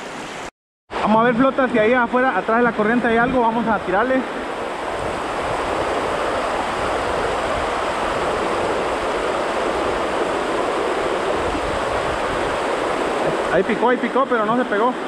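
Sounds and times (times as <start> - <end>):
river rapids rushing over rocks: 4.0 - 15.0.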